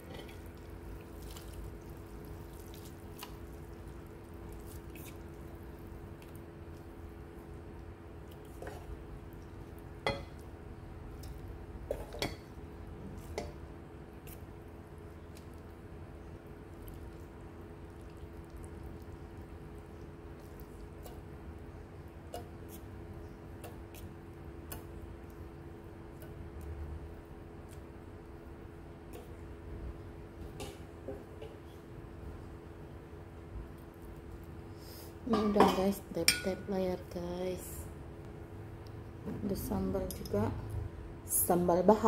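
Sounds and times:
steady low hum: 0.0 - 42.0
metal pot and spoon clinking: 35.3 - 36.6.

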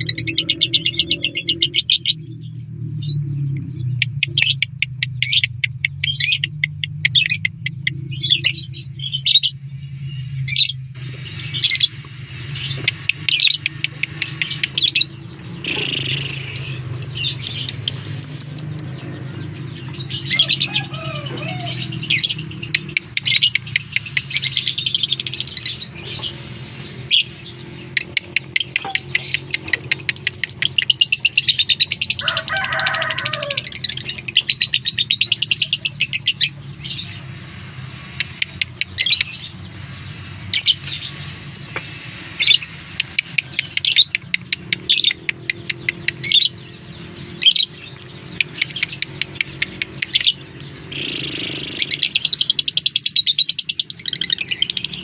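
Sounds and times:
lovebirds chirping: 0.0 - 55.0
low warbling bird call: 12.6 - 19.4, 44.8 - 54.8.

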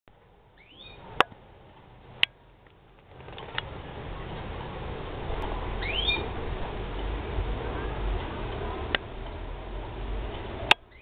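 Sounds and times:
low rushing noise: 0.1 - 11.0
swallow chirp: 5.8 - 6.3.

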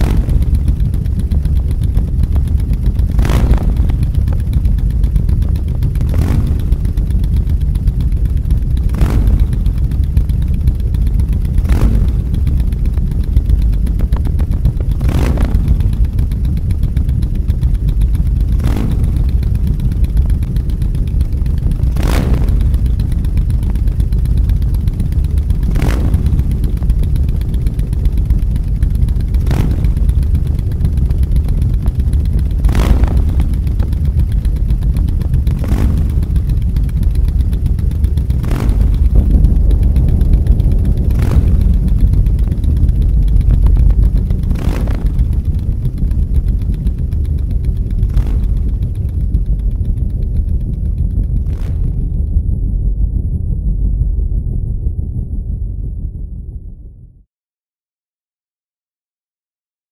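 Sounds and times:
deep engine-like rumble: 0.0 - 57.2
sharp hit: 18.0 - 49.4.

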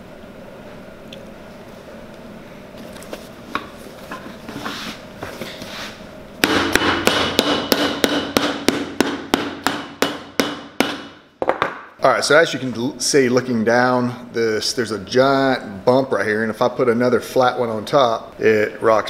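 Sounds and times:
hammer striking leather heel: 6.4 - 11.8.

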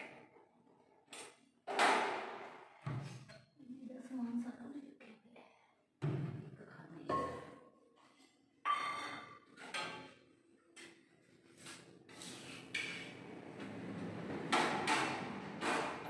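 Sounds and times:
pans and utensils clanking: 8.7 - 10.2, 14.5 - 16.0.

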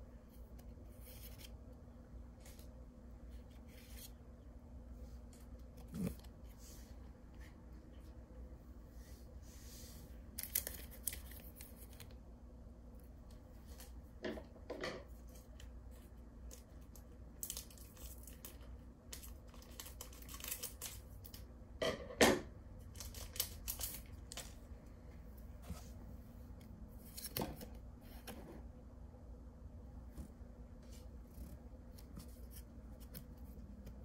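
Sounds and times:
cards rustling and clicking: 10.3 - 12.2, 16.4 - 21.5, 22.8 - 24.6
wrapper tearing: 19.2 - 21.4.

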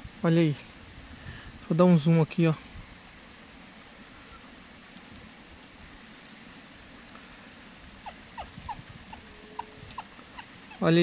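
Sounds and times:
dog whimpering: 7.4 - 11.0.

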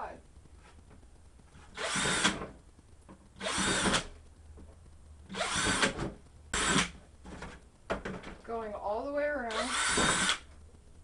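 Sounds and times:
power drill boring plastic: 1.7 - 2.4, 3.4 - 4.1, 5.3 - 6.9, 9.5 - 10.5.

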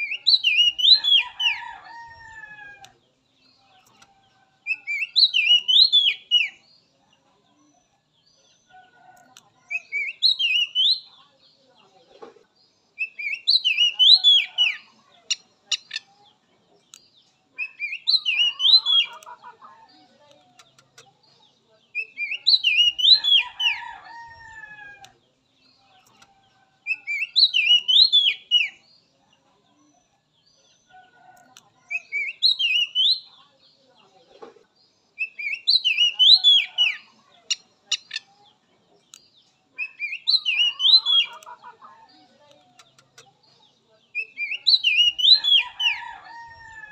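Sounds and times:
bird singing whistled phrases: 4.7 - 6.6, 9.7 - 11.1, 26.9 - 28.8, 31.9 - 33.3, 35.2 - 37.1, 39.8 - 41.4.

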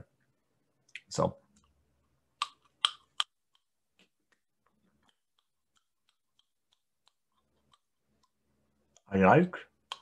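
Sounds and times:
sharp mouth clicks: 2.4 - 3.6.

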